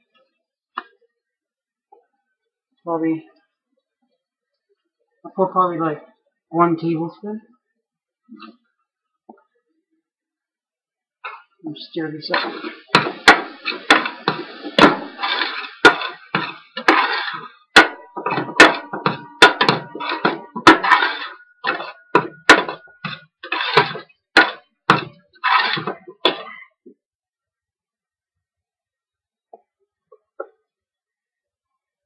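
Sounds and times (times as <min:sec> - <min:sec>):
metal spoon scraping a pot: 0:12.3 - 0:26.4.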